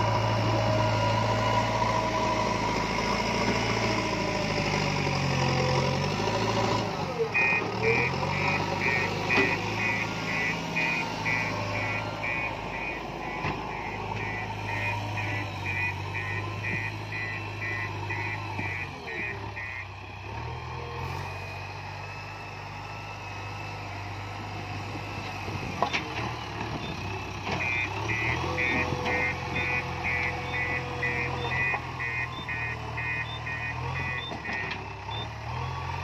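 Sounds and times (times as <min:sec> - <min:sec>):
diesel engine under load: 0:00.0 - 0:36.0
reversing alarm beeping: 0:07.3 - 0:19.9, 0:26.8 - 0:36.0.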